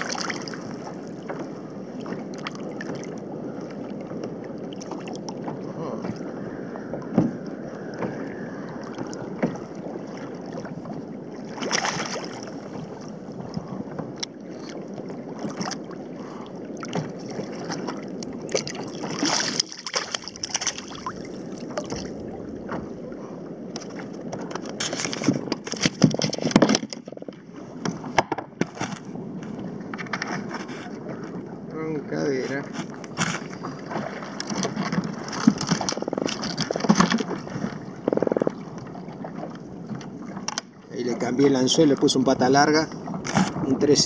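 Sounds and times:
waves lapping against kayak: 0.0s - 44.0s
fishing gear knocks and clicks: 23.8s - 27.4s, 34.4s - 37.4s.

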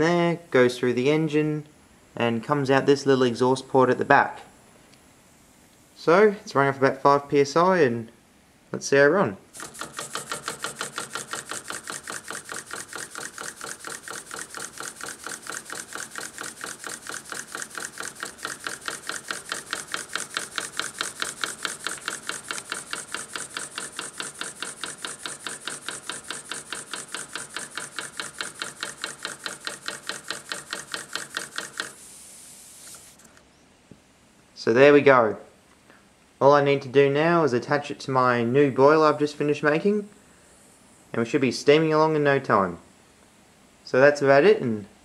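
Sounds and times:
small steam engine puffing and clicking: 9.5s - 33.4s.

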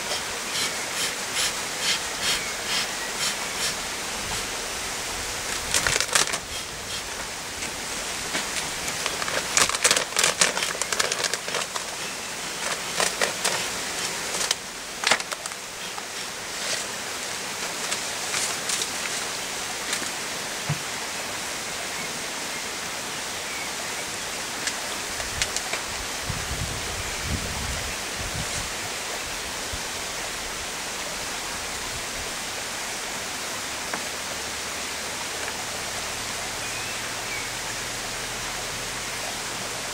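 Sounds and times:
bellows smoker hiss: 0.0s - 21.6s.

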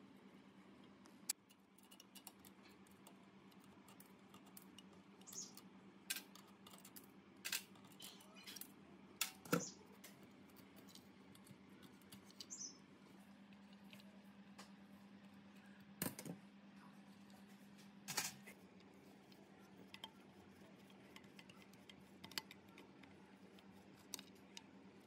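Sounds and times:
faint low hum: 0.0s - 25.0s
tool clicks and taps: 21.1s - 23.1s.

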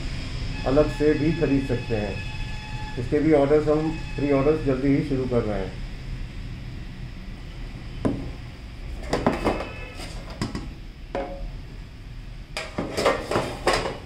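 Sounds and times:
metal tin clanks and scrapes: 12.6s - 14.0s.

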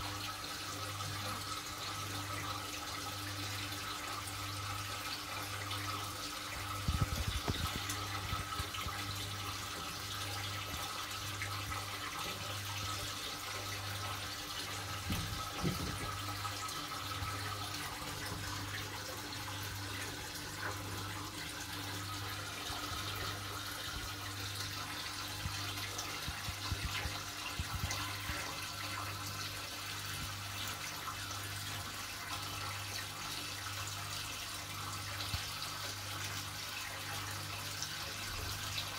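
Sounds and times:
circulating water and bubbles: 5.5s - 30.6s.

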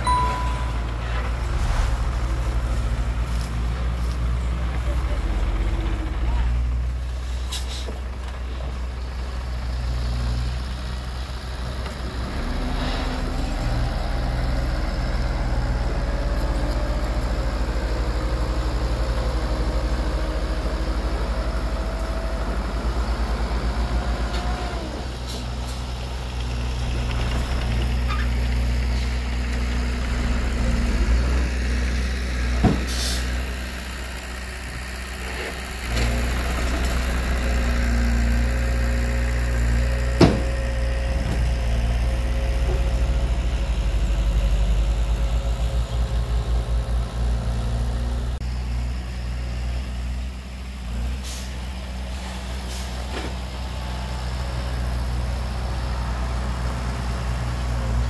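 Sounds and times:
heavy diesel engines rumbling: 0.0s - 58.0s
faint rising whine: 0.1s - 3.8s
short hiss of air: 1.3s - 3.6s.

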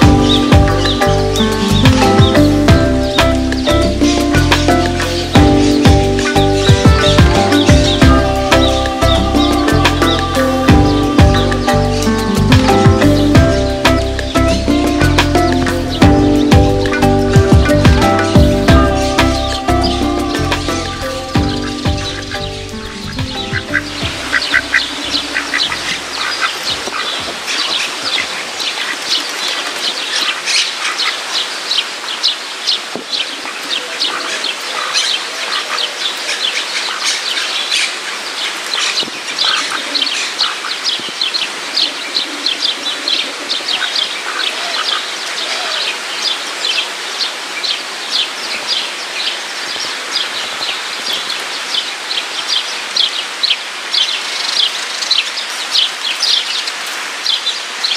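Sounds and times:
background music: 0.0s - 26.2s
small birds chirping: 0.0s - 57.9s.

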